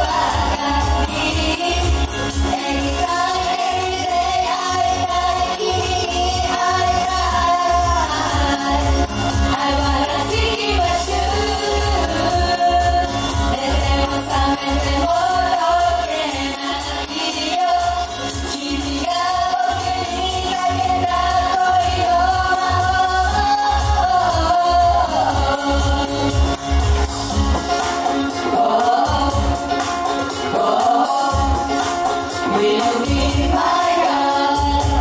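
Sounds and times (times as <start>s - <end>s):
women singing together: 0.0s - 26.8s, 28.2s - 35.0s
backing track with bass drum: 0.0s - 35.0s.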